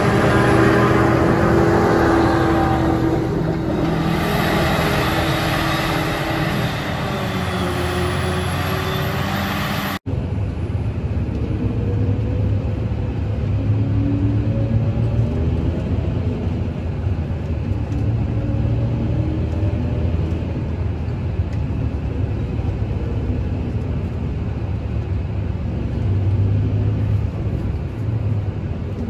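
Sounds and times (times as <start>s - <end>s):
tractors running: 0.0s - 10.0s.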